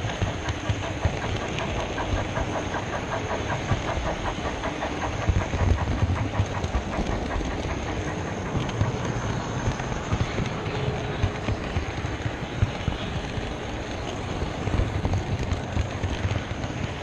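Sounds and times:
model train wheels rumbling: 0:00.0 - 0:17.0
quick regular clicking: 0:00.1 - 0:17.0.

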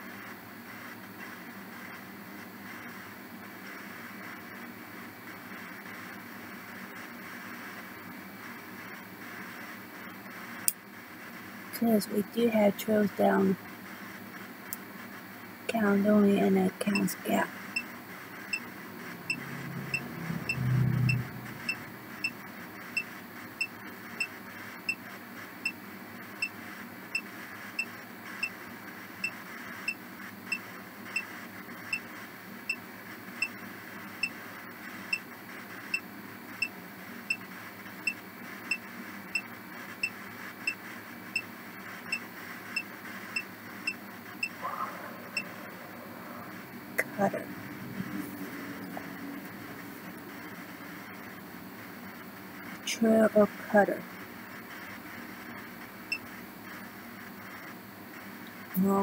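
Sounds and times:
brief low hum: 0:19.0 - 0:22.3, 0:44.5 - 0:51.2.

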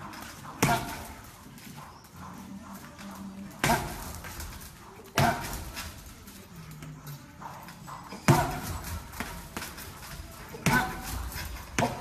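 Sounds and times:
strikes on heavy punching bag: 0:00.6 - 0:01.3, 0:03.6 - 0:04.4, 0:05.2 - 0:05.8, 0:08.2 - 0:09.8, 0:10.5 - 0:12.0.

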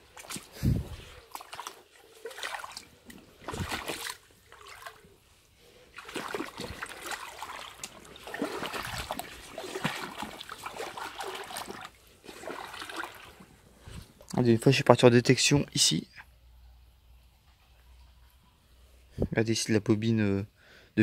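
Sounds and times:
faint water trickle: 0:00.0 - 0:14.5
river water splashing: 0:01.2 - 0:05.1, 0:05.9 - 0:13.5.

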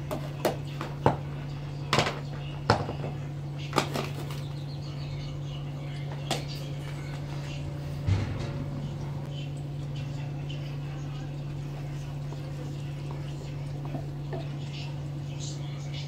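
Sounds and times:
steady low hum: 0:00.0 - 0:16.0
plastic bowl knocking on metal: 0:01.9 - 0:03.2.

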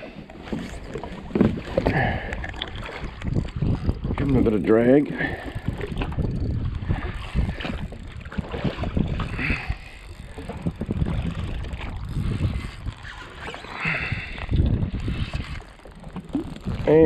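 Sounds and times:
small waves slapping hull: 0:00.0 - 0:17.0
wind buffeting microphone: 0:00.5 - 0:17.0.

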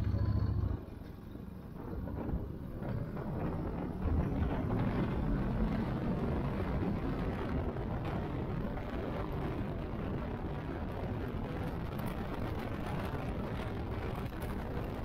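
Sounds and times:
motorcycle running: 0:00.0 - 0:01.0
wind rushing over microphone: 0:01.9 - 0:15.0.

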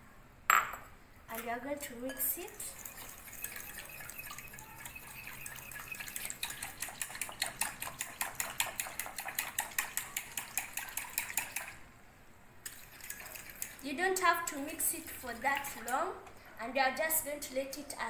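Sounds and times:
whisk clicking against glass: 0:03.4 - 0:11.8.

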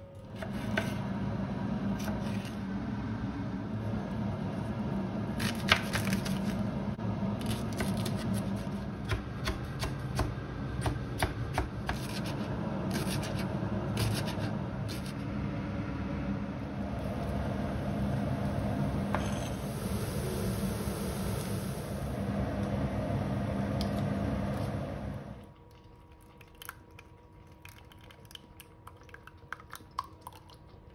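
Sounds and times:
steady low hum: 0:00.0 - 0:30.9
steady hiss: 0:19.2 - 0:22.3.

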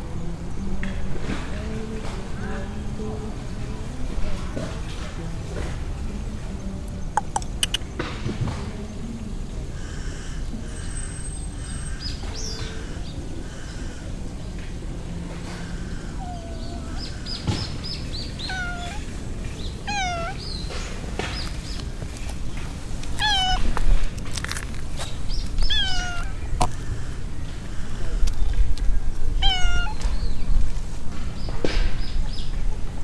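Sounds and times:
cat meowing: 0:16.1 - 0:17.2, 0:18.4 - 0:19.1, 0:19.8 - 0:20.4, 0:23.2 - 0:23.7, 0:25.6 - 0:26.4, 0:29.4 - 0:30.0.

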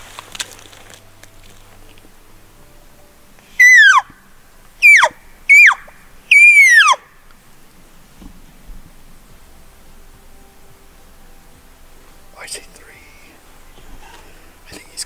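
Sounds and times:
elk calls: 0:03.3 - 0:07.3.

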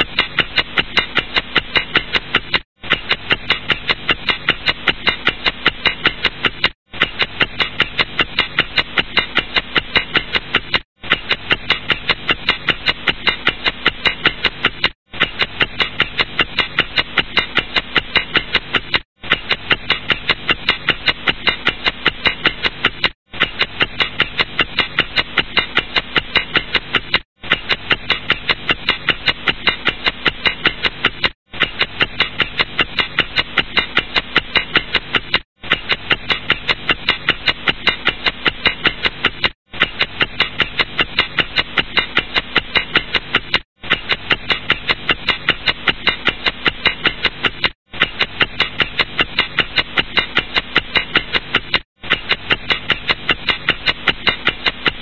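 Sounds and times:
clock ticking rapidly: 0:00.0 - 0:55.0.

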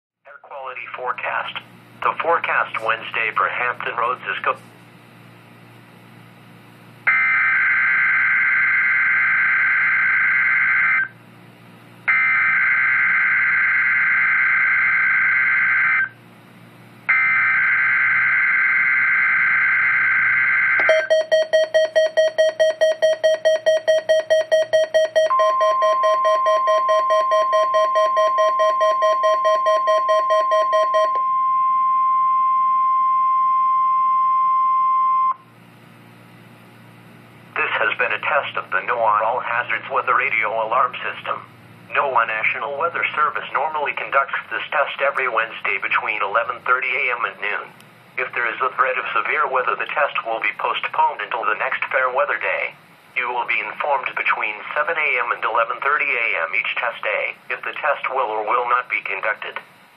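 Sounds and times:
steady warning alarm tone: 0:07.0 - 0:11.2, 0:12.0 - 0:16.2, 0:17.1 - 0:35.4
rapid beeping: 0:20.0 - 0:35.4.

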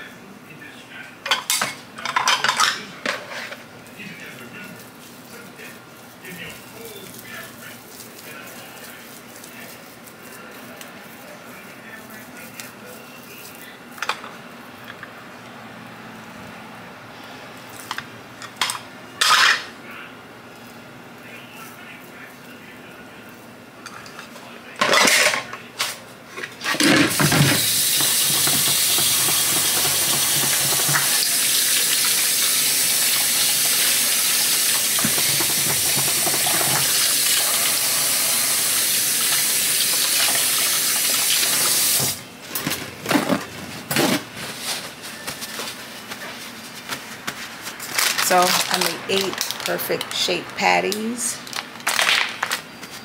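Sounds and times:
paper towel rustling: 0:03.3 - 0:13.9, 0:41.5 - 0:49.8
tap water running: 0:27.0 - 0:42.2.

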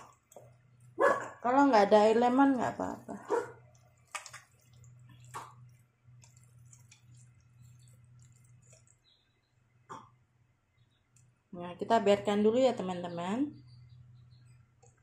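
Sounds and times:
hands kneading wet chicken: 0:00.0 - 0:09.4
soft wet smacks: 0:03.6 - 0:09.1.

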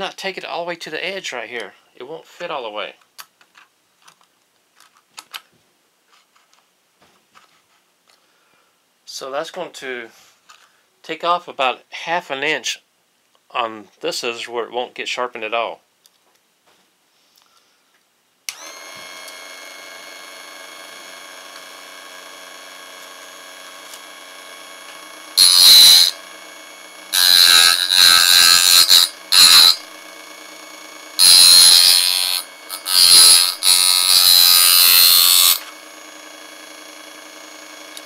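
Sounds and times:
electric motor running: 0:18.5 - 0:38.0
blade grinding on wheel: 0:23.8 - 0:38.0.

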